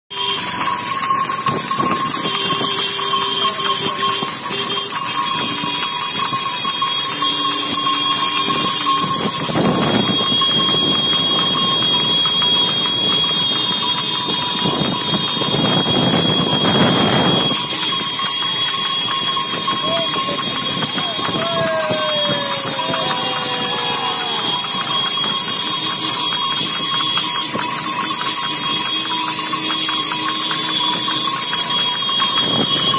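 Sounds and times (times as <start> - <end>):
cart wheels on asphalt: 0.1 - 32.9
horse hooves on asphalt: 0.1 - 32.9
wind on microphone: 8.4 - 12.1, 14.2 - 17.8.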